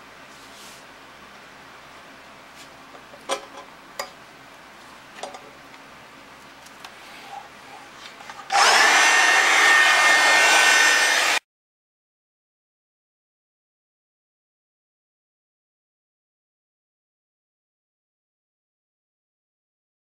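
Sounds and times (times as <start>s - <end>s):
electric blower whining: 8.5s - 11.4s.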